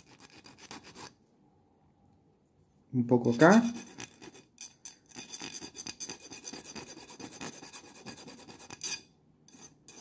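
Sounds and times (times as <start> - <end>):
file rasping on metal: 3.4 - 10.0.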